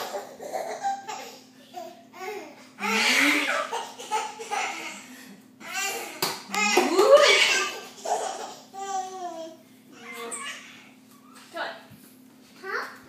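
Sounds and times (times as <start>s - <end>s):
baby laughing: 0.0s - 5.0s, 5.8s - 9.4s.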